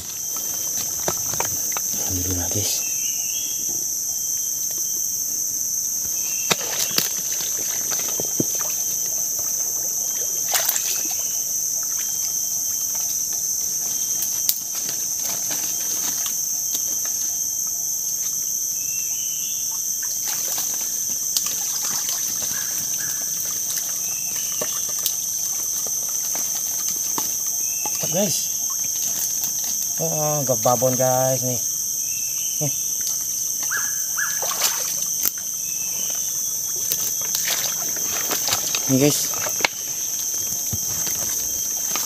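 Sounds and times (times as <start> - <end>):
high-pitched insect chorus: 0.0 - 42.0
person wading through shallow water: 37.0 - 42.0.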